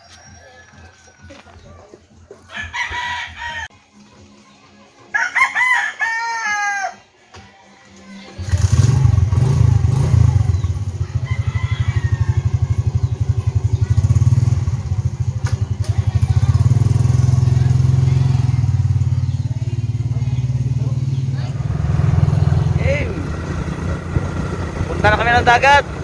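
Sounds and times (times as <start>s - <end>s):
rooster crowing: 0.0s - 1.8s, 2.5s - 3.7s, 5.1s - 7.0s, 11.0s - 12.9s
motor scooter engine running: 8.4s - 26.0s.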